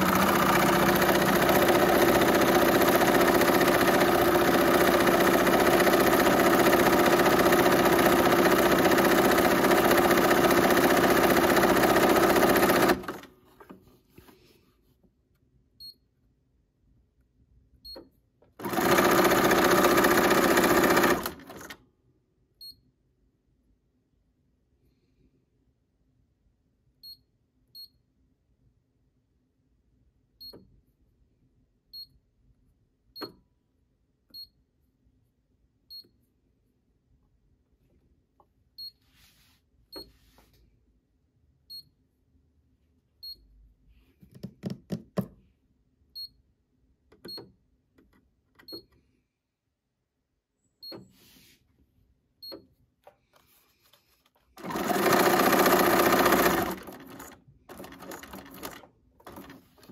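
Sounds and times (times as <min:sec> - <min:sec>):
sewing machine clicks: 0:00.0 - 0:13.3, 0:18.6 - 0:21.8, 0:54.6 - 0:59.9
sewing machine stitching: 0:00.0 - 0:13.4, 0:18.5 - 0:21.8, 0:54.5 - 0:59.9.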